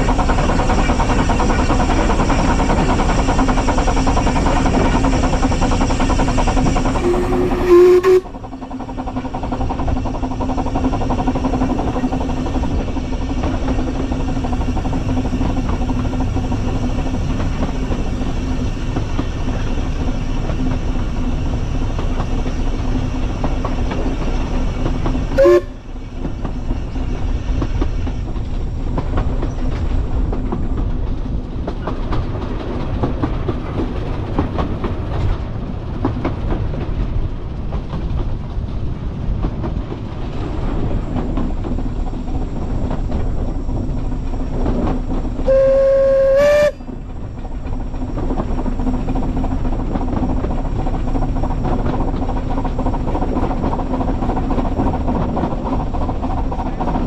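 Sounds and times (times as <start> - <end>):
steam locomotive rumble and rail clatter: 0.0 - 57.0
steam whistle blasts: 7.0 - 8.4, 25.4 - 25.9, 45.4 - 47.0.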